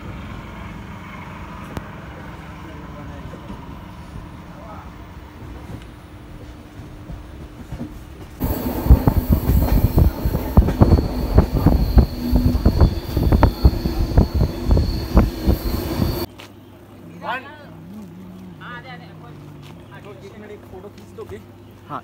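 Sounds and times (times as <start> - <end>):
train wheels clattering on rails: 5.5 - 16.3
faint high whine: 8.4 - 16.3.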